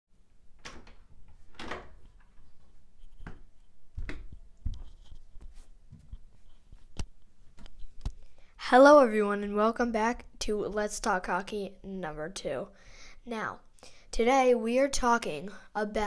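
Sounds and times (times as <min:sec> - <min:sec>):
knocks and thumps of handling: 0:00.6 - 0:08.2.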